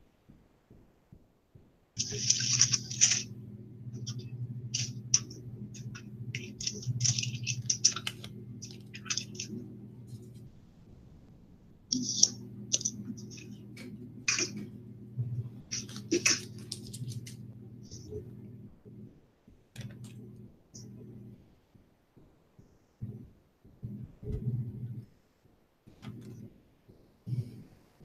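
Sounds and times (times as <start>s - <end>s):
scratchy rustling and handling: 2.0s - 3.3s, 4.0s - 10.6s, 11.9s - 14.7s, 15.7s - 18.1s
steady low buzz: 2.0s - 21.6s, 23.0s - 25.1s.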